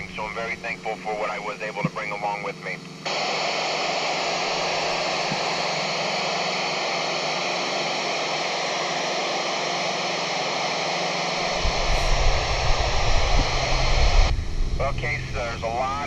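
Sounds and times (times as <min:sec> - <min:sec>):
radio static hiss: 0:00.0 - 0:16.0
low rumble: 0:11.4 - 0:16.0.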